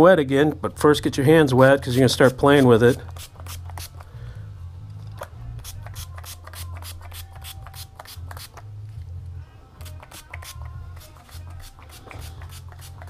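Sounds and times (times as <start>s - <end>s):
spray bottle spritzing: 2.2s - 4.1s, 5.6s - 8.6s, 9.8s - 13.0s.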